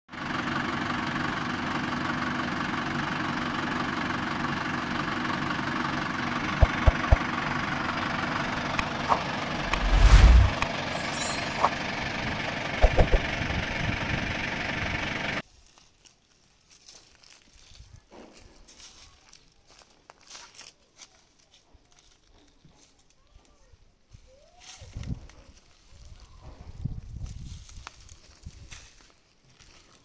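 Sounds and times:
sharp knocks: 12.8 - 13.2
mechanical running noise: 12.8 - 14.4.

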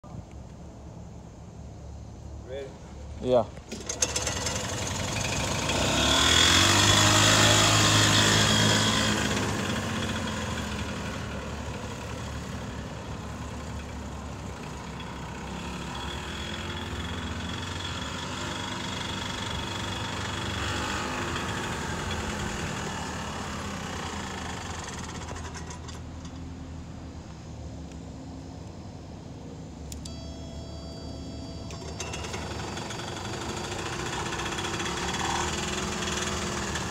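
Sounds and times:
golf cart engine running: 3.2 - 27.5, 29.8 - 36.9
high whine: 26.2 - 35.6.

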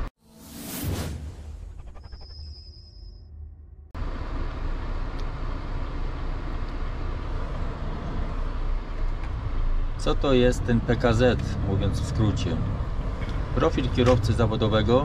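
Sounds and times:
truck engine and road noise: 3.8 - 15.0.

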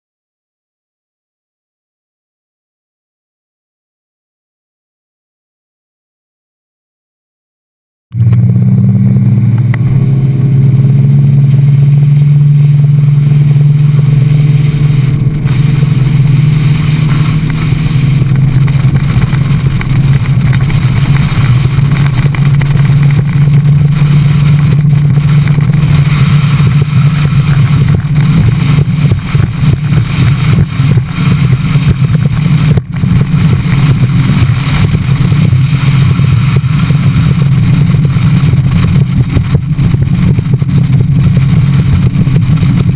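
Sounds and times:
outboard motor droning: 8.2 - 42.9
water rushing over hull: 8.2 - 42.9.

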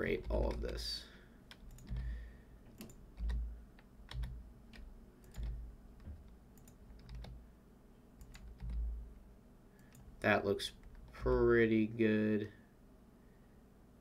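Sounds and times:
keyboard keystrokes: 1.5 - 2.1, 2.7 - 7.4, 8.2 - 8.9.

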